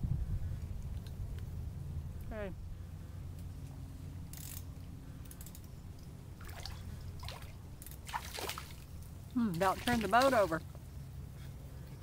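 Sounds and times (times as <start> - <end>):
steady low rumble: 0.0 - 9.8
fishing reel cranking and clicking: 4.3 - 5.7
fish splashing: 6.4 - 10.6.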